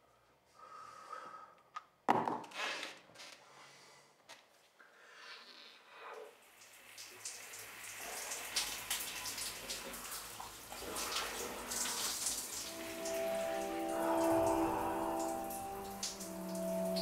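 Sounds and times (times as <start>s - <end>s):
shower water spattering on tiles: 6.4s - 17.0s.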